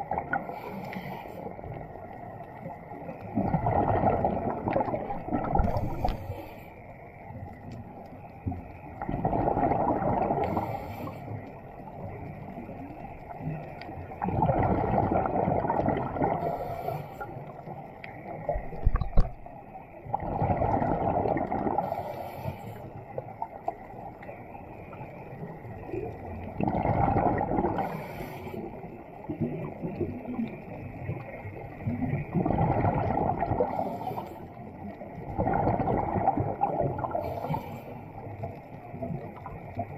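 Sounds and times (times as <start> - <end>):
exhaled bubbles gurgling: 0.0 - 39.9.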